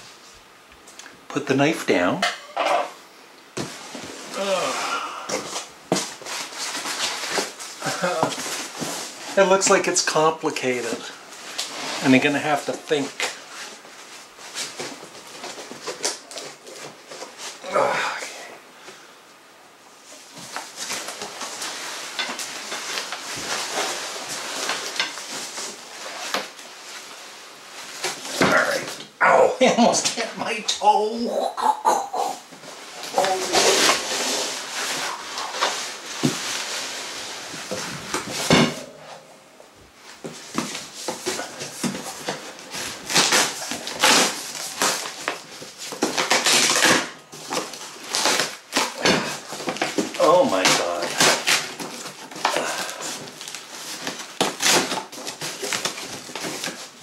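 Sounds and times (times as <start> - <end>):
cardboard box scraping rustle: 32.6 - 38.6
cardboard tearing: 32.9 - 38.6, 40.4 - 57.0.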